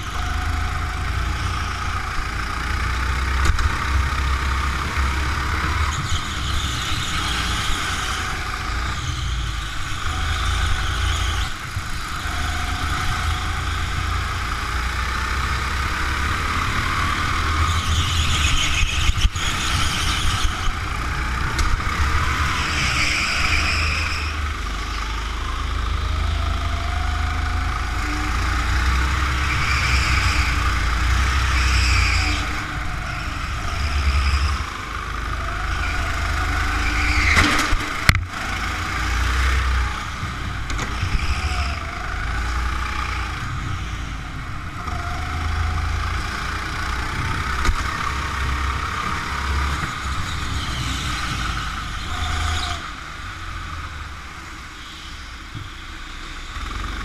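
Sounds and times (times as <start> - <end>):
go-kart engine running: 0.0 - 57.0
tyre squeals: 21.9 - 24.7, 27.7 - 34.7, 35.4 - 38.1.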